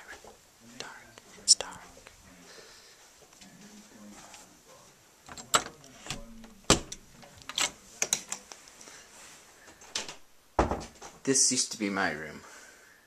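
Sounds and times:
door being handled: 5.3s - 7.8s.

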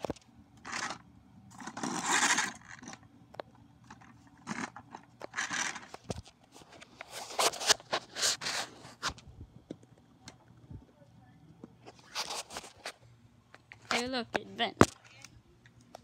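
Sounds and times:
scraping and rustling: 3.9s - 9.2s, 11.8s - 13.0s.

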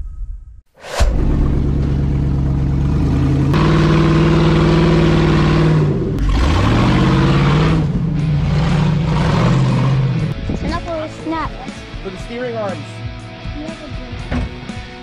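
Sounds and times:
buggy engine revving: 1.1s - 12.2s.

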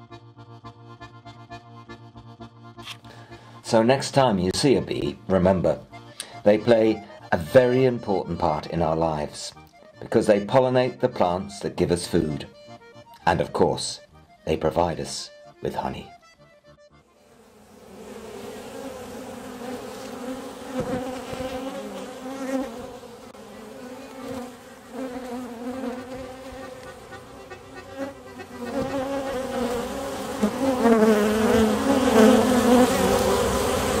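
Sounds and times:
bees buzzing: 16.1s - 34.0s.

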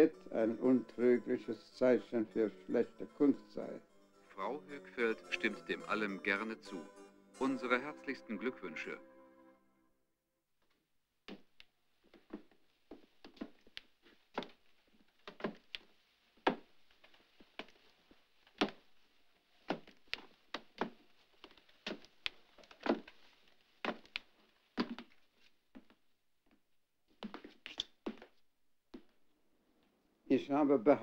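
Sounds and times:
footsteps on a staircase: 11.3s - 28.4s.

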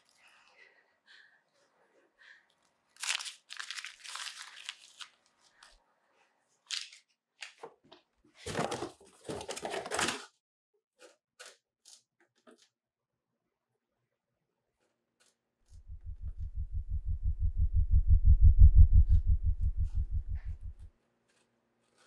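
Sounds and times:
deeper bumps: 15.8s - 20.9s.

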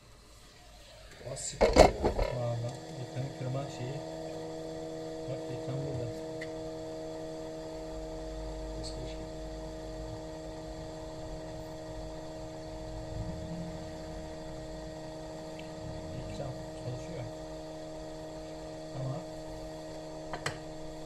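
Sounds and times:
electrical hum: 0.0s - 21.0s
low rumble: 12.7s - 17.0s.

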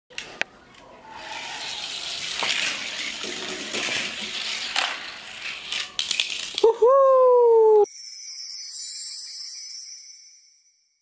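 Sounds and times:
toy cars rolling on plastic track: 1.2s - 6.7s
toy cars clattering on concrete: 1.8s - 6.7s.

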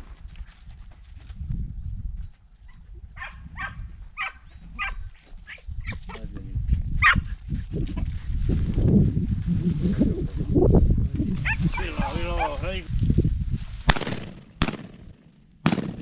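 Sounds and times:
low rumble on microphone: 0.9s - 13.9s
hounds yelping: 3.2s - 6.2s, 7.0s - 7.3s, 11.4s - 12.6s.

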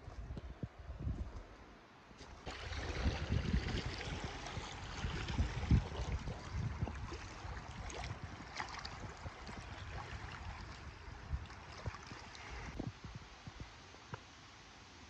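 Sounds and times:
wind buffeting microphone: 0.0s - 1.5s, 2.2s - 13.8s
water lapping on stony shore: 2.2s - 12.8s.

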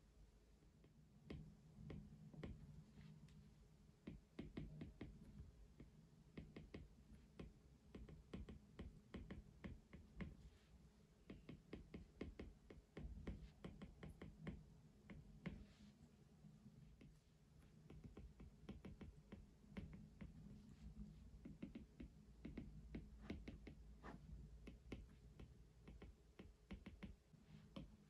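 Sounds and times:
faint low hum: 0.0s - 28.0s
light taps and clicks: 4.0s - 10.4s, 21.4s - 28.0s.

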